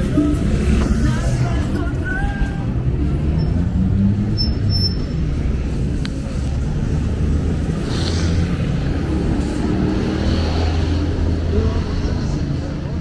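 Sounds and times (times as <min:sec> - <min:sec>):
vehicle engines rumbling: 0:00.0 - 0:13.0.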